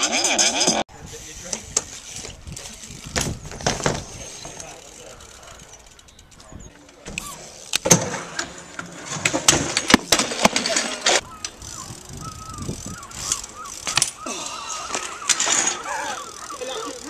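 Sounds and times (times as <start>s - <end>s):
bike tyres rolling on asphalt: 0.9s - 17.0s
bike landing clacks and knocks: 3.0s - 4.8s, 6.9s - 12.0s, 12.7s - 14.2s.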